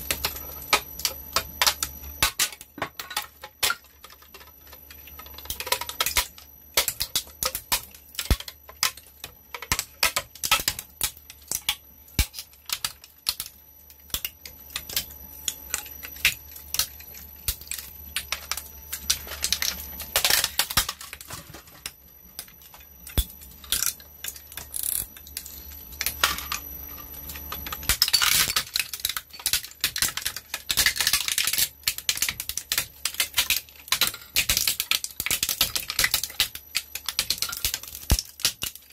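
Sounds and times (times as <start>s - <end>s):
machine humming: 0.0s - 31.0s
shredder crunching plastic: 0.0s - 38.9s.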